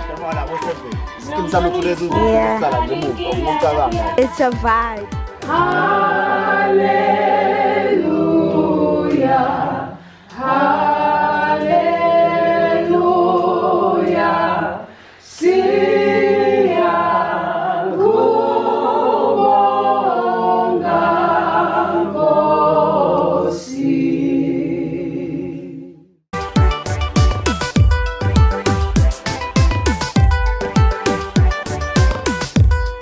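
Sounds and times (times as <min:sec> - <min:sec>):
recorded music: 0:00.0 - 0:09.8, 0:26.4 - 0:33.0
group singing a cappella: 0:00.0 - 0:26.1.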